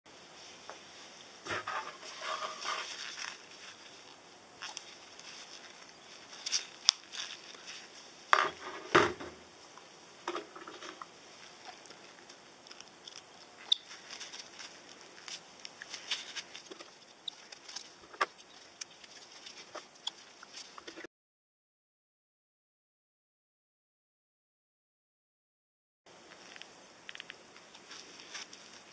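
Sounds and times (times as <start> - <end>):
gloved hands rustling: 0.4 - 9.0, 10.4 - 21.1, 26.3 - 28.9.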